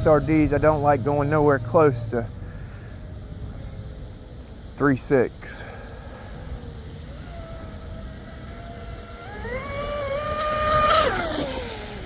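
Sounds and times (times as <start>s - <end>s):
boat spray hiss: 0.0s - 12.0s
electric motor whine: 0.0s - 12.0s.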